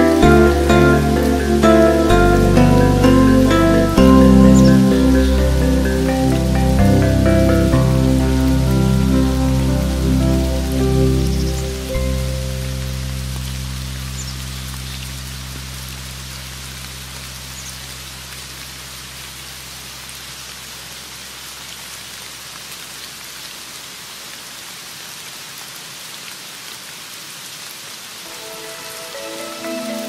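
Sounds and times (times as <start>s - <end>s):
gamelan instrumental music: 0.0s - 13.5s, 28.3s - 30.0s
steady rain: 0.0s - 30.0s.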